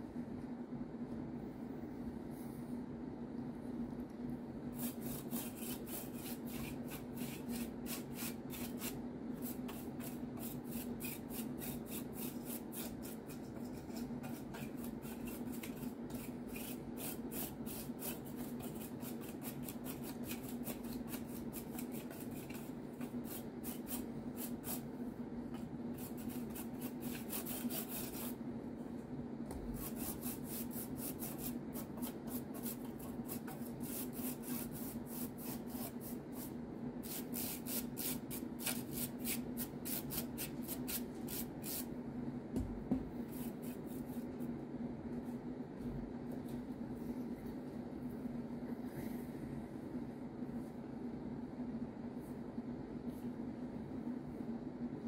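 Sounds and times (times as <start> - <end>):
brush scrubbing circuit board: 4.8 - 24.9, 25.9 - 28.4, 29.7 - 41.9.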